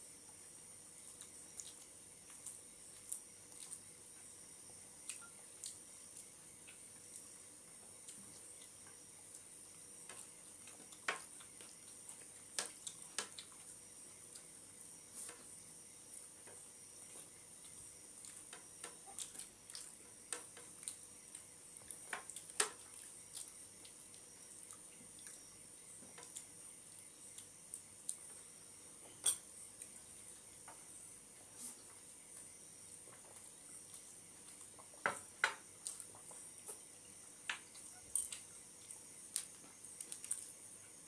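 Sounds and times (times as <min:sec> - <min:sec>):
chewing and mouth smacks: 0:01.0 - 0:03.9, 0:37.7 - 0:40.6.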